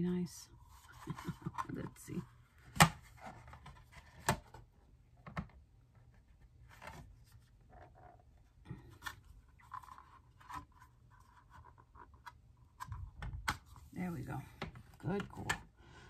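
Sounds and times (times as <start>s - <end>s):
plastic scraping and rubbing: 0.7s - 4.6s, 5.2s - 14.0s.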